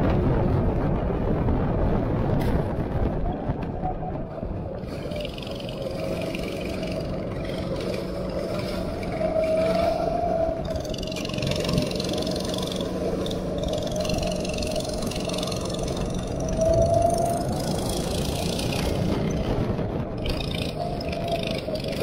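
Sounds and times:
go-kart engine running: 0:04.8 - 0:22.0.

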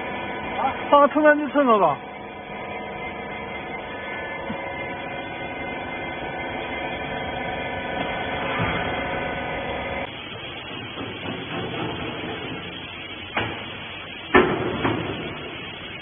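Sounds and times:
hydraulic power unit humming: 0:00.0 - 0:16.0.

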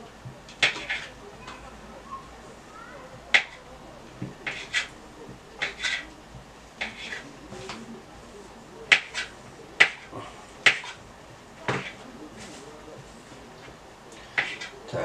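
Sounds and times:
knife tapping cutting board: 0:04.2 - 0:06.1, 0:08.9 - 0:11.0, 0:11.6 - 0:12.0.

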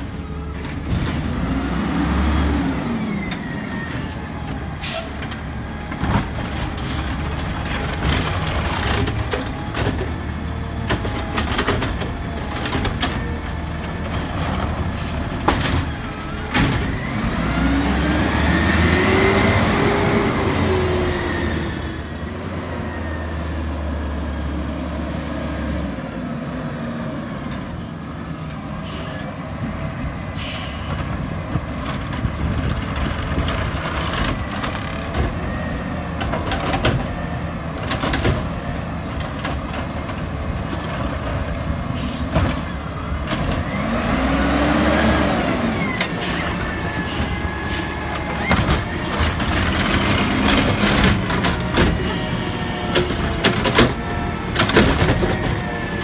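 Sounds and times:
engine revving: 0:00.9 - 0:03.2, 0:16.5 - 0:22.1, 0:43.6 - 0:56.0
air brake hisses: 0:04.8 - 0:05.2, 0:28.8 - 0:29.3, 0:30.3 - 0:30.9, 0:42.0 - 0:42.3
hydraulic arm knocks and clanks: 0:05.2 - 0:17.2, 0:36.2 - 0:41.5, 0:48.2 - 0:56.0
garbage truck engine running: 0:29.4 - 0:56.0.

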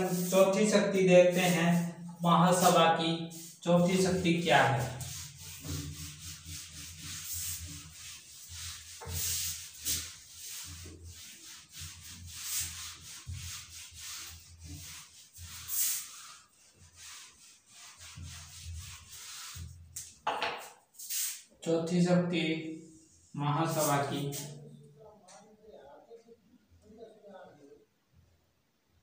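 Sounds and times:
duster rubbing whiteboard: 0:00.0 - 0:21.5, 0:23.6 - 0:24.6.

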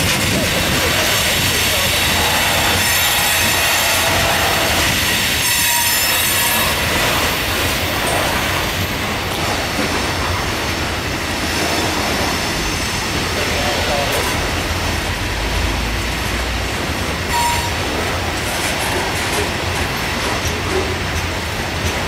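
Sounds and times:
train wheels rumbling on rail: 0:00.0 - 0:22.0
high wheel squeal: 0:02.1 - 0:07.2, 0:17.3 - 0:18.0.

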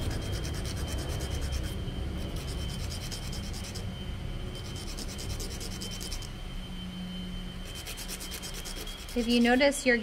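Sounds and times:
wooden dowel rubbing on sandpaper: 0:00.0 - 0:03.8, 0:04.6 - 0:06.3, 0:07.7 - 0:09.8.

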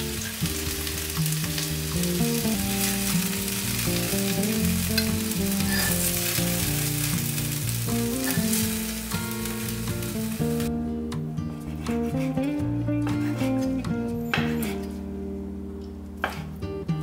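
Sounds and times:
chicken sizzling in a pan: 0:00.0 - 0:10.7
soft background music: 0:00.0 - 0:17.0.

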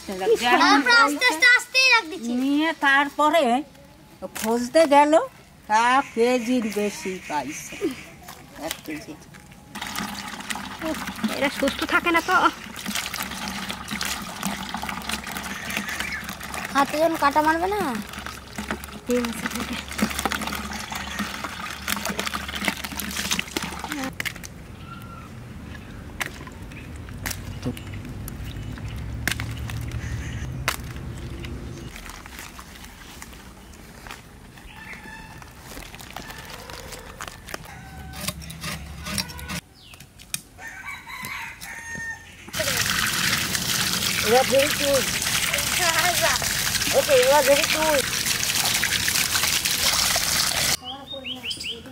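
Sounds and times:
water splashing: 0:09.7 - 0:24.5, 0:26.1 - 0:33.0, 0:42.5 - 0:50.8.

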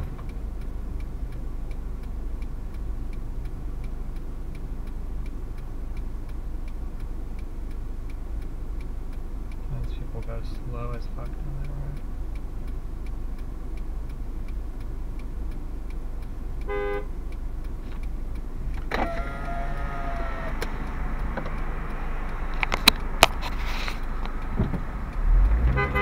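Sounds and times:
car engine idling: 0:00.0 - 0:26.0
truck horn honking: 0:16.6 - 0:17.1, 0:25.5 - 0:26.0
sharp clicks: 0:17.3 - 0:25.8.

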